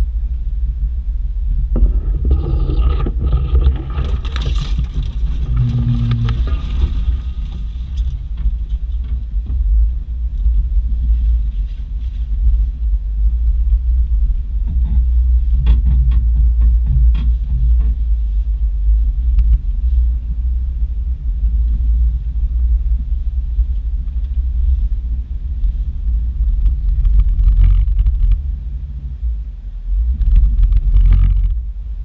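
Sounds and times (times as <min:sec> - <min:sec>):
branches scraping vehicle body: 0:01.7 - 0:09.1.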